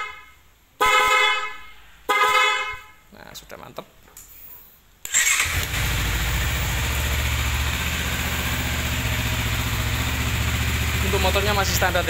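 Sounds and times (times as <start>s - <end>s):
motorcycle engine starting and idling: 5.0s - 12.0s.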